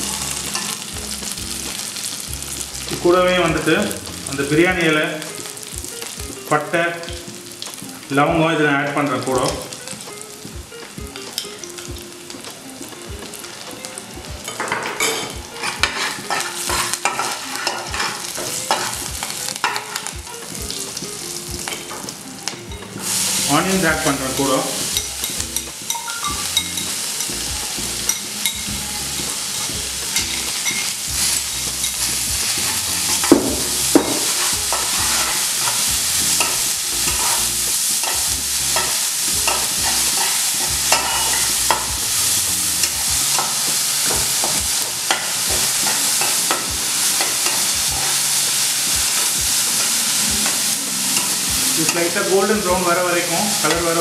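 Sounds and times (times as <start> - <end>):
onions sizzling: 0.0 - 54.0
spatula scraping a pan: 14.4 - 20.4, 29.2 - 52.2.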